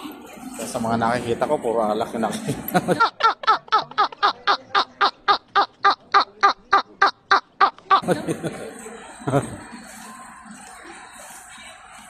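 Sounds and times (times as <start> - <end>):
man laughing: 2.3 - 8.6.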